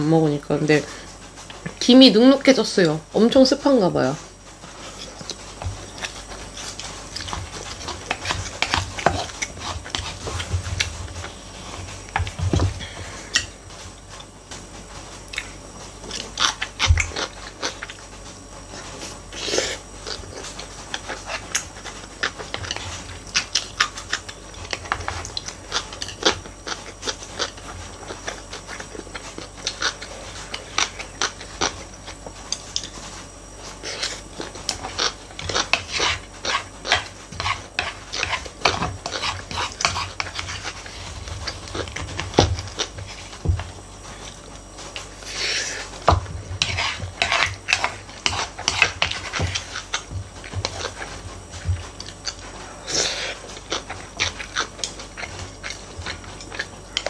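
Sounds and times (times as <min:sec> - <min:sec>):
chewing and lip-smacking: 0:18.7 - 0:57.0.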